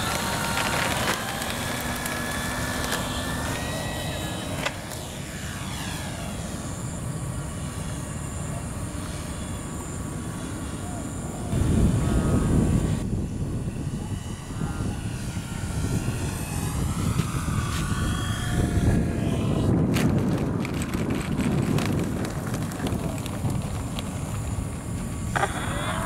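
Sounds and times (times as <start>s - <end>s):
model plane motor whining: 0.0s - 26.0s
wind rumble on microphone: 0.0s - 26.0s.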